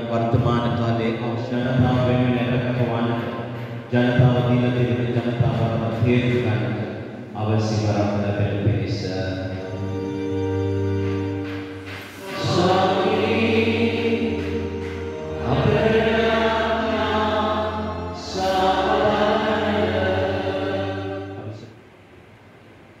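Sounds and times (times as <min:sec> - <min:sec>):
hymn singing: 0:00.0 - 0:21.8
held accompanying chords: 0:00.0 - 0:22.0.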